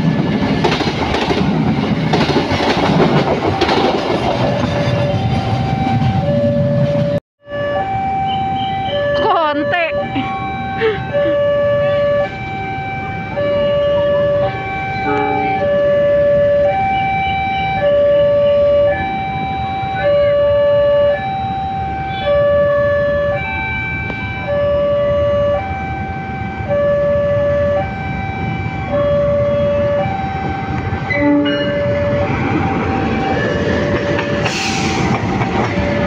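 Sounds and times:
approaching train rumble: 0:00.0 - 0:07.2, 0:23.4 - 0:36.0
two-tone crossing alarm chime: 0:04.5 - 0:34.5.

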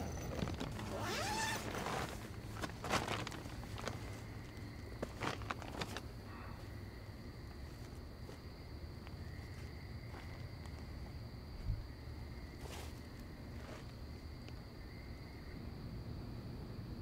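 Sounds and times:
rustling footsteps: 0:00.0 - 0:06.1, 0:07.5 - 0:11.8, 0:12.5 - 0:14.0
night insects trilling: 0:00.0 - 0:17.0.

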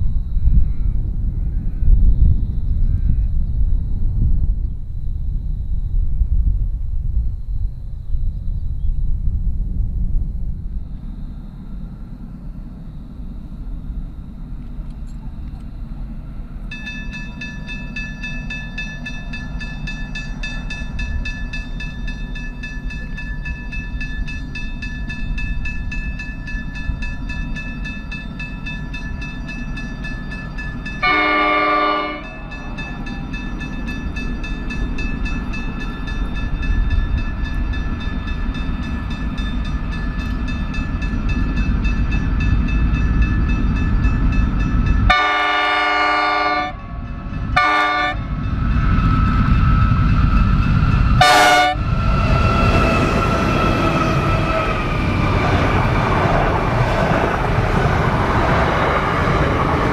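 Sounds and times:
diesel freight train rumbling: 0:00.0 - 0:59.9
steady high ringing: 0:10.9 - 0:57.2
train horn blast: 0:31.0 - 0:32.5, 0:45.1 - 0:48.3, 0:51.2 - 0:52.0.

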